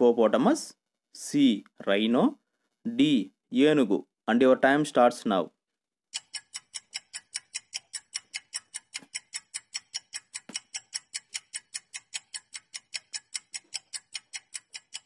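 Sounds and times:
clock ticking fast: 6.1 - 15.0.

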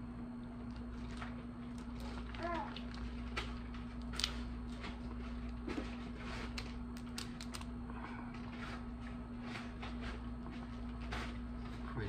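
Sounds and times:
crab shell cracking: 3.9 - 4.4, 6.6 - 7.8.

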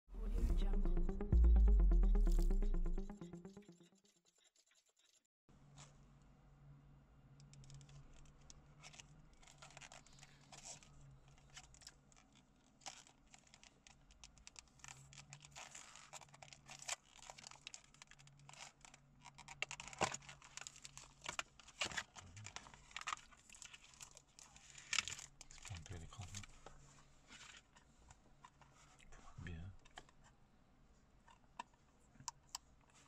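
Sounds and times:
plastic packaging crinkling: 7.8 - 25.7.

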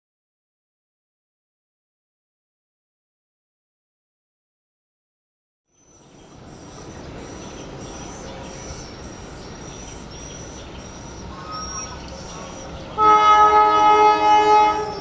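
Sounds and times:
high chirping: 5.8 - 13.2, 14.8 - 15.0
locomotive horn blast: 12.9 - 15.0.

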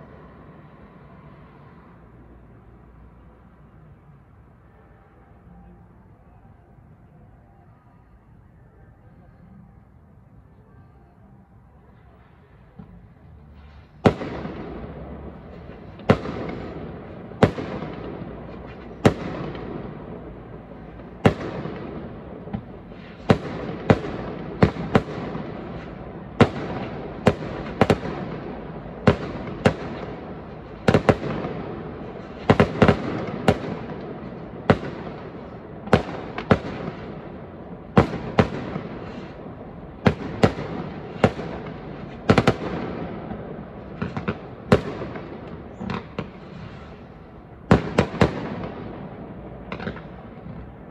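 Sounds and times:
fireworks bursting with echo: 12.6 - 50.9.

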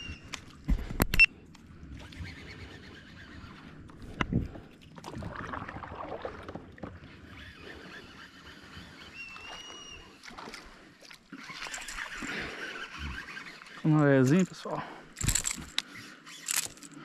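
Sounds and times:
water sloshing around kayak: 1.6 - 16.5.

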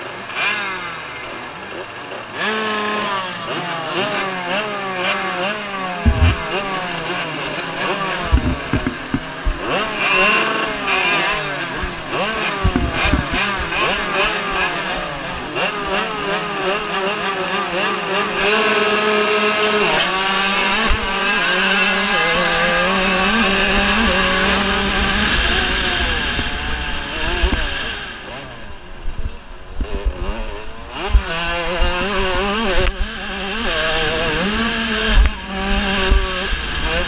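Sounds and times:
motocross bikes revving: 0.0 - 37.0.

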